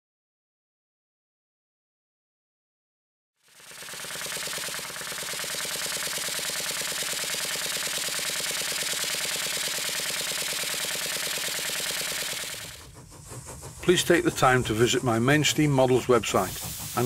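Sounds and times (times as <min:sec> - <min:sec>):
model steam engine running: 0:03.4 - 0:17.0
hiss of steam and burner: 0:06.2 - 0:17.0.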